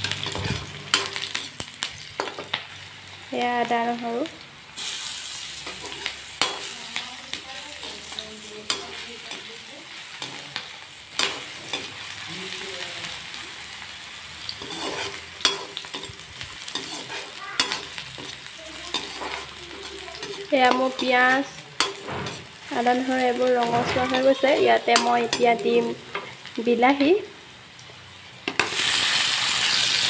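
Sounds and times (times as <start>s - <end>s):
metal spoon scraping pan: 0.0s - 1.6s, 5.6s - 9.6s, 14.5s - 26.3s
onions sizzling in hot oil: 0.0s - 30.0s.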